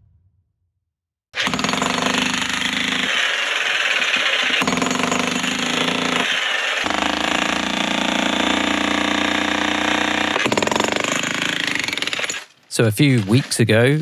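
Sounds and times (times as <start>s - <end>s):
demolition hammer breaking stone: 1.4s - 12.5s.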